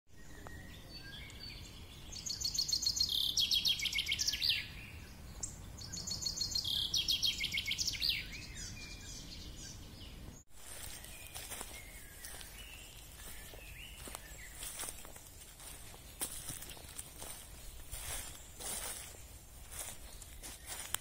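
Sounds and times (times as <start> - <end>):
songbird trilling: 0.2 - 10.2.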